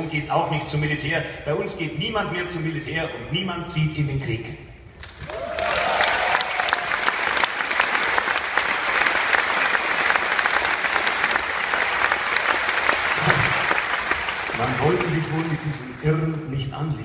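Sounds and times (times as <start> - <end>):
audience applauding: 5.0 - 16.7.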